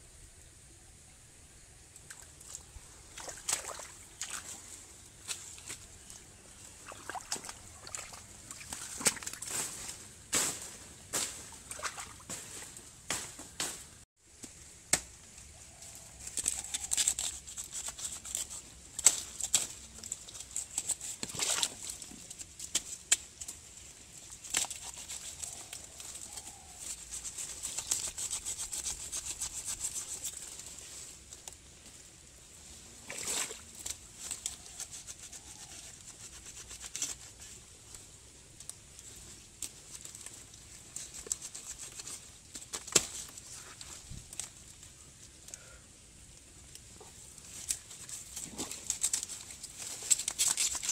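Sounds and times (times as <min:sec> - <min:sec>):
dry leaves rustling and crackling: 0:03.5 - 0:45.2, 0:46.8 - 0:50.9
snaps and clicks of plants: 0:05.2 - 0:06.2, 0:06.9 - 0:10.6, 0:16.2 - 0:30.7, 0:36.6 - 0:45.7, 0:46.3 - 0:50.9.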